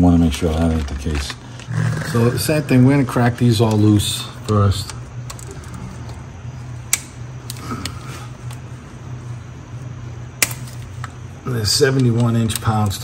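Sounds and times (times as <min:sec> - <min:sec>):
steady low hum: 0:00.0 - 0:13.0
bolts cracking loose: 0:10.4 - 0:13.0.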